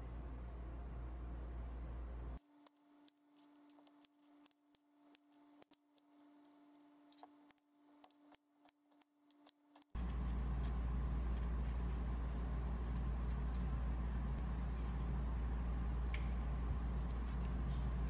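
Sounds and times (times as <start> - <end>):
knife paring potato: 2.4 - 13.8.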